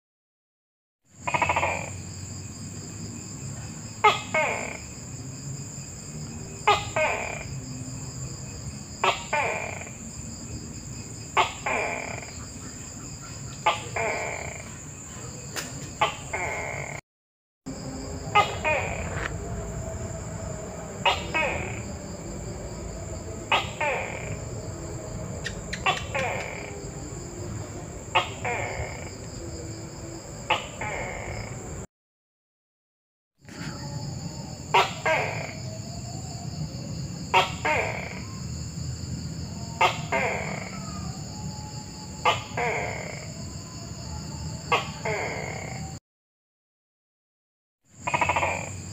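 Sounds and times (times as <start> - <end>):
gecko calling: 1.2 - 2.3, 3.5 - 5.2, 6.2 - 17.0, 17.7 - 31.9, 33.5 - 38.6, 39.4 - 46.0, 48.0 - 48.9
high-pitched whine: 17.7 - 30.4.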